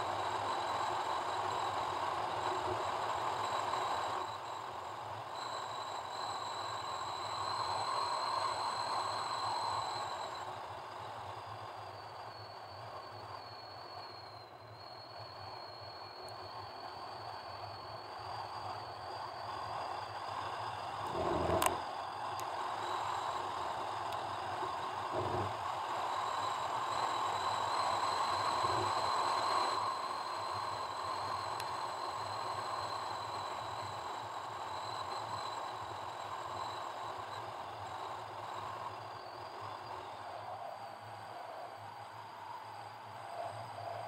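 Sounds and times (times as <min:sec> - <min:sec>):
faint high whine: 0:00.0 - 0:44.0
car engine: 0:21.0 - 0:21.8, 0:25.0 - 0:25.6
car going over bumps: 0:21.1 - 0:21.8.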